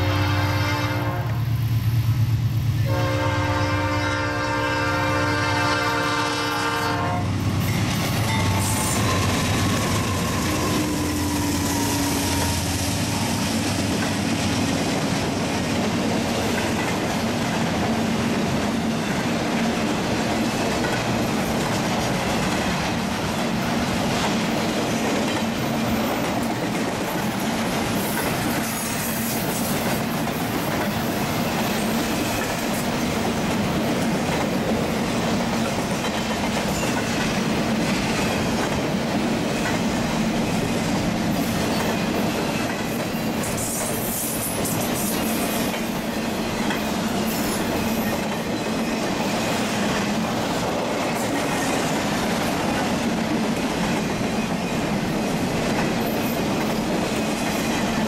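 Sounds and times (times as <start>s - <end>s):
locomotive horn chord: 0.0s - 1.4s, 2.8s - 7.3s
train wheels rumbling on rails: 0.0s - 58.0s.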